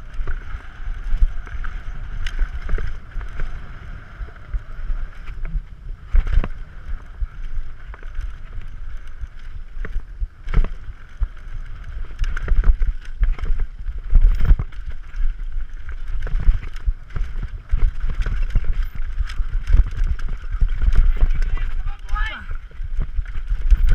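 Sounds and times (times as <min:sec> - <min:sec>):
bike knocks and rattles: 0:00.0 - 0:23.9
tyres on dirt: 0:00.0 - 0:23.9
wind rumble on microphone: 0:00.0 - 0:23.9.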